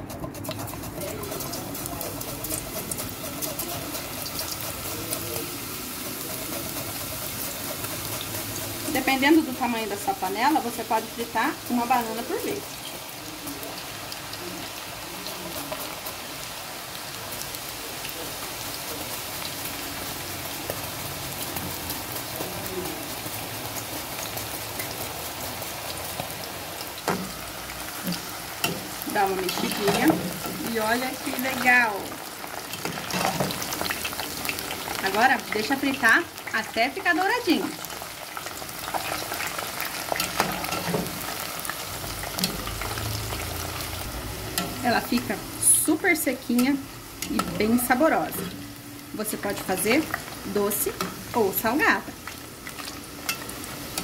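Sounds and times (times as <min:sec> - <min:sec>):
utensil clicking against pot: 0:00.0 - 0:05.2
plantain deep-frying in oil: 0:00.0 - 0:54.0.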